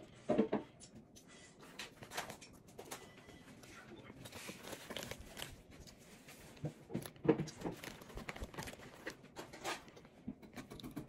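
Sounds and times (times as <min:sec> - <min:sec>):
plastic bag crinkling: 0:02.0 - 0:10.1.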